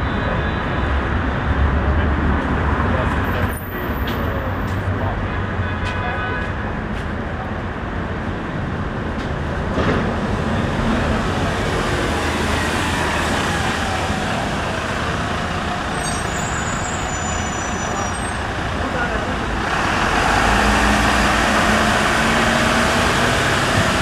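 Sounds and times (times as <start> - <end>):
city street traffic: 0.0 - 24.0
bus driving past: 9.3 - 24.0.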